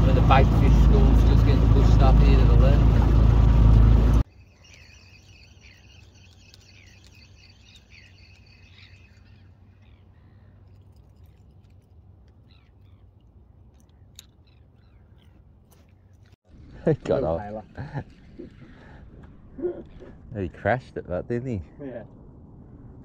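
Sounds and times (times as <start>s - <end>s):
outboard motor running: 0.0s - 10.9s
birds chirping: 0.0s - 22.1s
low hum: 0.0s - 23.0s.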